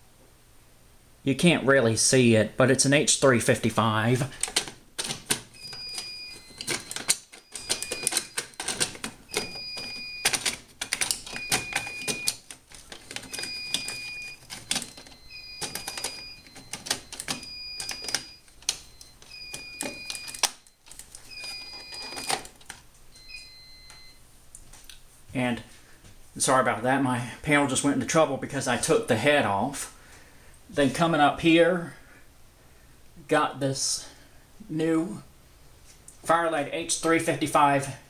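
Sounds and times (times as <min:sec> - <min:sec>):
clicking and rattling of plastic: 0:04.4 - 0:22.8
alarm panel beeping: 0:05.5 - 0:24.2.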